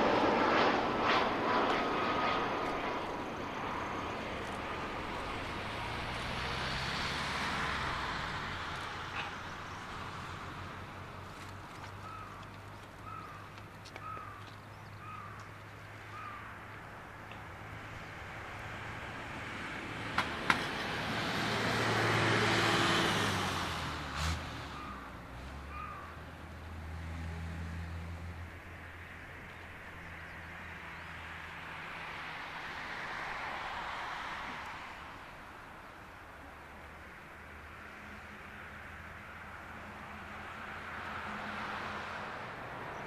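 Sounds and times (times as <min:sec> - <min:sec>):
airliner jet noise: 0:00.0 - 0:11.6
crow cawing: 0:12.0 - 0:12.4, 0:13.0 - 0:15.4, 0:16.1 - 0:16.6, 0:25.7 - 0:26.2.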